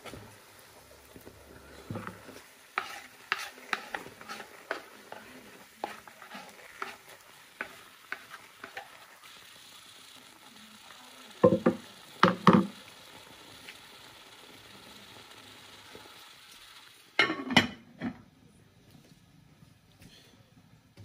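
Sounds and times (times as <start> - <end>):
wooden spatula knocking a metal pot: 11.4 - 12.7.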